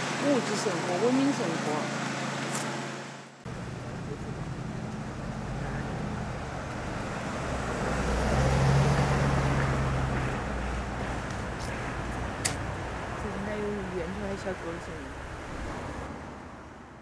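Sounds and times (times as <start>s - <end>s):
vehicle engine hum: 0.0s - 17.0s.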